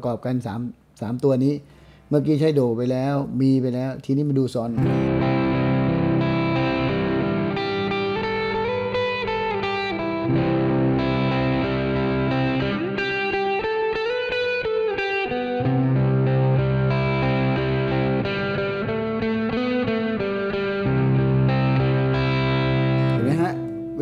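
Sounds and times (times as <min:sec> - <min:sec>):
sustained chord backing: 0:04.8 - 0:14.4, 0:15.2 - 0:24.0
electric guitar solo: 0:04.8 - 0:24.0.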